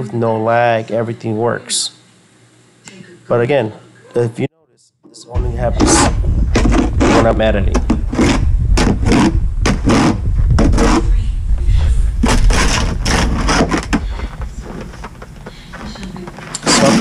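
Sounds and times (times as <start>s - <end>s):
low rumble: 5.4s - 16.5s
snow shovel scraping: 16.7s - 17.0s.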